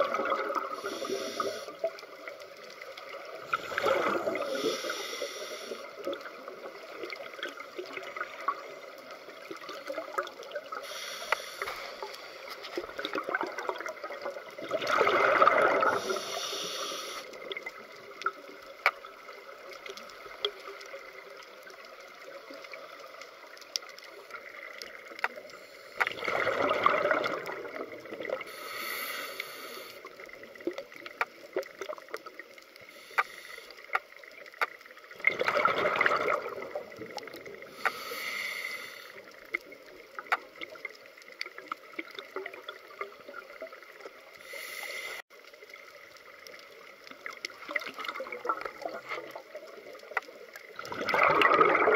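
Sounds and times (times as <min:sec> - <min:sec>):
exhaled bubbles rushing: 0:00.0 - 0:00.9, 0:03.0 - 0:04.6, 0:12.7 - 0:16.2, 0:26.0 - 0:28.5, 0:35.2 - 0:37.7, 0:47.3 - 0:49.8, 0:50.6 - 0:51.9
regulator inhalation hiss: 0:00.6 - 0:01.9, 0:03.7 - 0:06.0, 0:10.7 - 0:12.5, 0:15.9 - 0:17.5, 0:28.4 - 0:30.2, 0:32.8 - 0:33.9, 0:37.6 - 0:39.3, 0:44.4 - 0:45.2.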